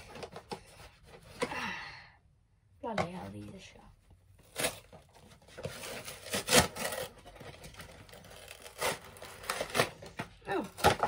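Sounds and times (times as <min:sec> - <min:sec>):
cardboard cracking: 0:04.5 - 0:11.0.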